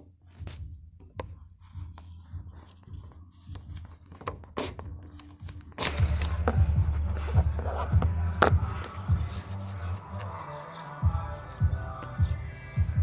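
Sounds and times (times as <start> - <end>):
muffled bass of amplified music: 0.0 - 13.0.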